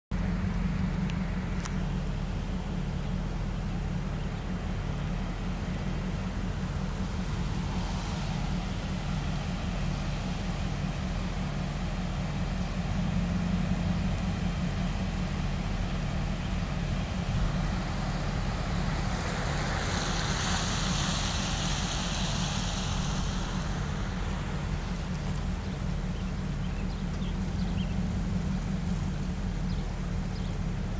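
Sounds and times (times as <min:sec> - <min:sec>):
heavy low rumble: 0:00.1 - 0:30.9
river rushing: 0:04.6 - 0:30.9
hiss: 0:17.4 - 0:25.3.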